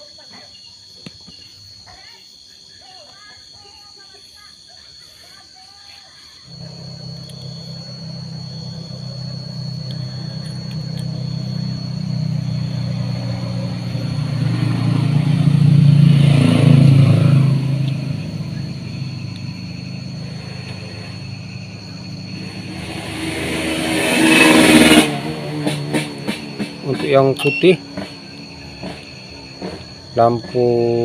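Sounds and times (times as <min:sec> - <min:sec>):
vehicle engine drone passing: 0:06.5 - 0:31.0.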